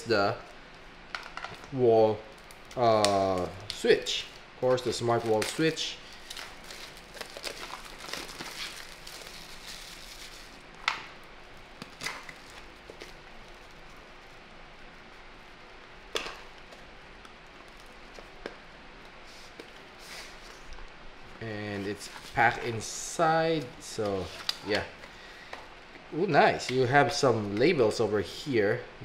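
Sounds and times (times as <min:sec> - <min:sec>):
plastic shrink-wrap crinkling: 0:01.2 - 0:18.5.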